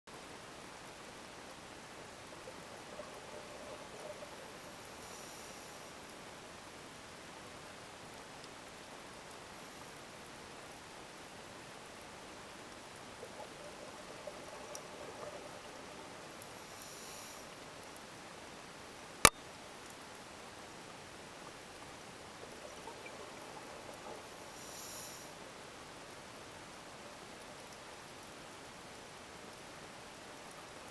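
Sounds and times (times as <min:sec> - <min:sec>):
small crackles: 0:00.1 - 0:06.8, 0:07.7 - 0:18.6, 0:19.2 - 0:30.9
faint underwater hiss: 0:00.2 - 0:30.9
scuba regulator breaths: 0:16.5 - 0:17.6, 0:24.4 - 0:25.4.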